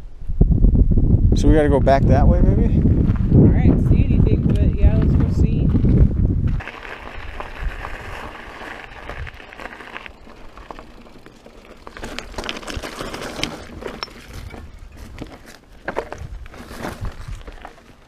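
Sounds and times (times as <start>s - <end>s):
bike rattling: 2.8s - 18.0s
tyres crunching on stones: 5.0s - 18.0s.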